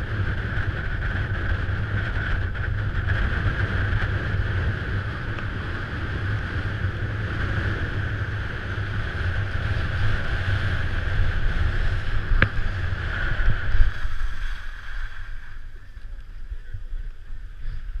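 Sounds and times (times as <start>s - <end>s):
wind rushing over camera: 0.0s - 18.0s
skis hissing over snow: 7.2s - 16.1s.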